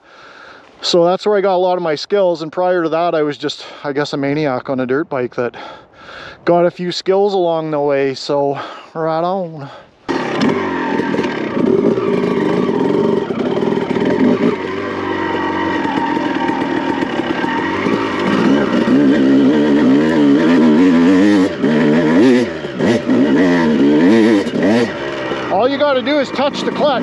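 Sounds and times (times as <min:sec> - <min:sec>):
dirt bike engine revving: 0:10.1 - 0:27.0.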